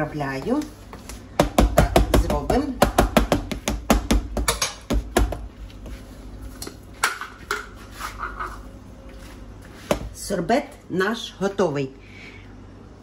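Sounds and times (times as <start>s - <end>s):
plastic containers knocking: 1.4s - 5.5s.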